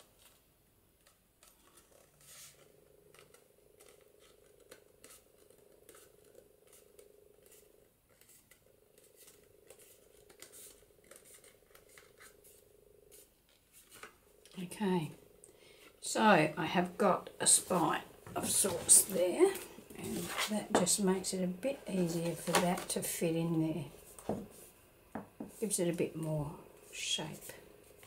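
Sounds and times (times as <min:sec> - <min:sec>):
card cover being folded: 0:00.0 - 0:14.2
faint steady hum: 0:00.0 - 0:28.0.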